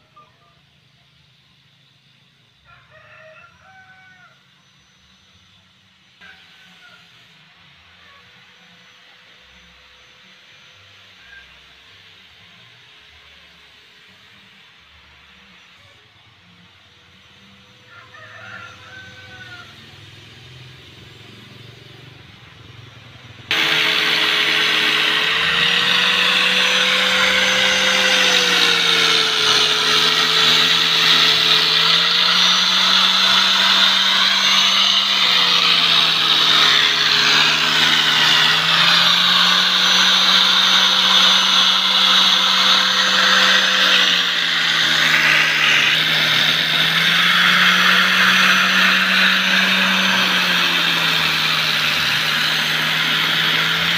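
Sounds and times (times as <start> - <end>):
angle grinder sanding wood: 23.4 - 53.9.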